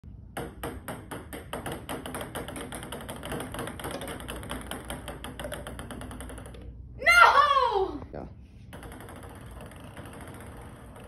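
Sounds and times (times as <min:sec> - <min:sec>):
ping pong balls bouncing on table: 0:00.3 - 0:06.8, 0:08.7 - 0:11.0.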